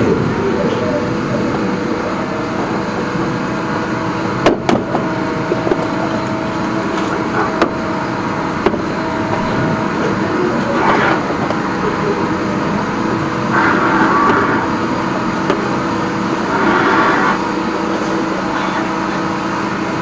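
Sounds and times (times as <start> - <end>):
drain jetter running: 0.0 - 20.0.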